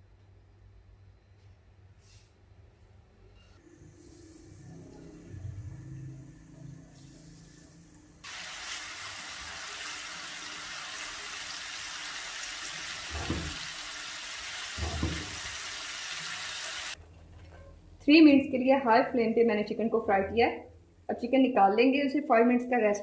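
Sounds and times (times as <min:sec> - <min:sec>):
chicken sizzling in hot oil: 0:08.2 - 0:17.0.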